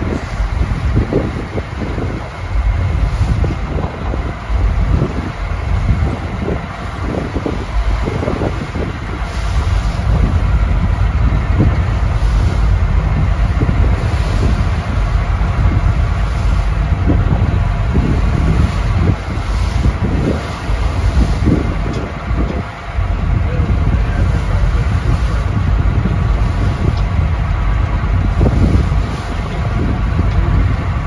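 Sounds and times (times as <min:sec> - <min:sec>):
boat engine drone: 0:00.0 - 0:31.0
water rushing along hull: 0:00.0 - 0:31.0
wind buffeting microphone: 0:00.0 - 0:31.0.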